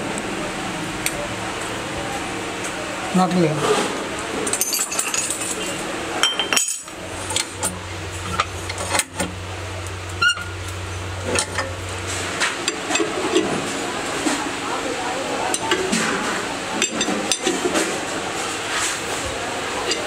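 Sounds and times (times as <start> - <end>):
steel tools clinking: 4.4 - 9.3.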